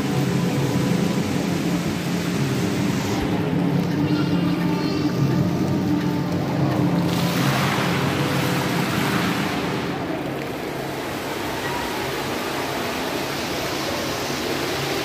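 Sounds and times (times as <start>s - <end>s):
fountain water splashing: 0.0s - 15.0s.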